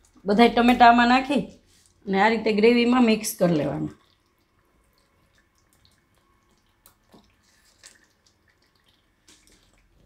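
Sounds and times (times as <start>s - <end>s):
faint wet squelches: 0.0s - 2.1s, 3.3s - 10.0s.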